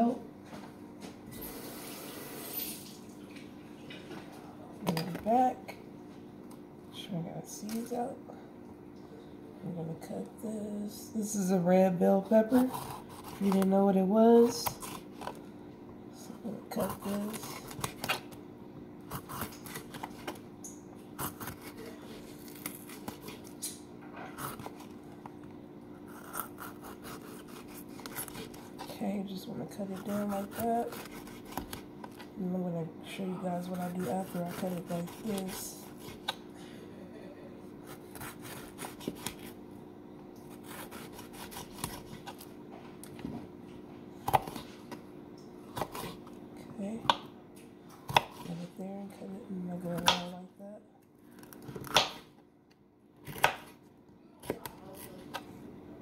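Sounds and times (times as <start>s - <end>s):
faint steady hum: 0.0s - 56.0s
knife slicing bell pepper: 12.4s - 15.4s, 19.1s - 20.4s, 21.2s - 24.9s, 26.0s - 29.0s, 29.7s - 32.3s, 33.6s - 36.4s, 37.8s - 39.6s, 40.4s - 42.5s, 45.7s - 46.3s, 48.1s - 48.6s, 53.2s - 53.8s.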